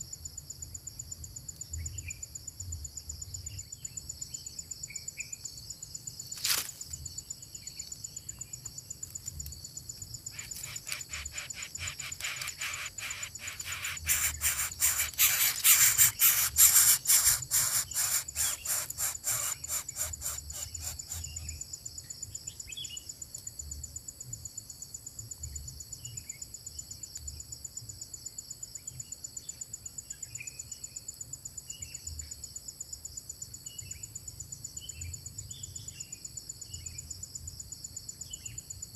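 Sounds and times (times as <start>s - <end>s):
high-pitched insect drone: 9.1s - 23.0s
rapid pulsing call: 10.3s - 21.5s.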